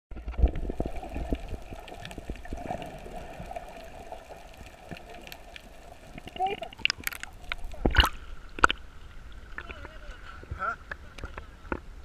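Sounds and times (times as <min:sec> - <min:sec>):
clicks and crackles: 0:00.1 - 0:08.9
muffled underwater water rumble: 0:00.1 - 0:11.7.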